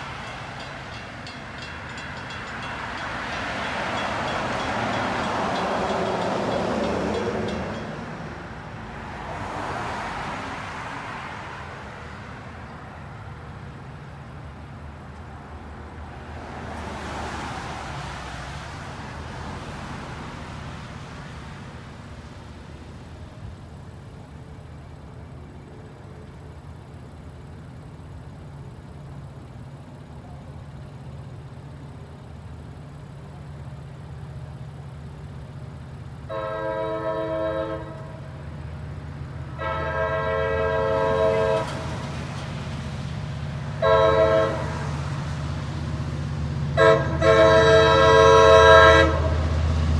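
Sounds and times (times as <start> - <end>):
cars driving past: 0.0 - 29.9, 30.7 - 49.9
low traffic engine hum: 0.0 - 49.9
train horn: 36.3 - 38.4, 39.5 - 42.0, 43.8 - 45.0, 46.7 - 49.6.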